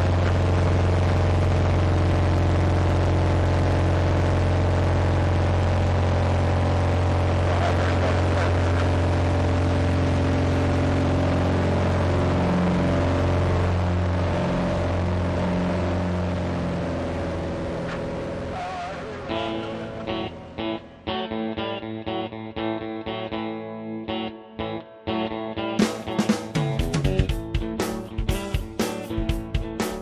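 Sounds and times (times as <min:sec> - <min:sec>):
propeller plane engine droning: 0:00.0 - 0:21.6.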